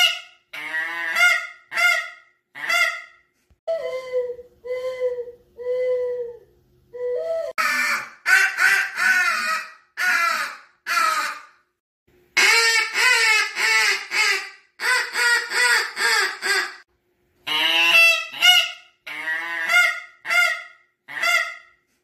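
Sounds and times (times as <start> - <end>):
goose honking: 17.5 - 21.6.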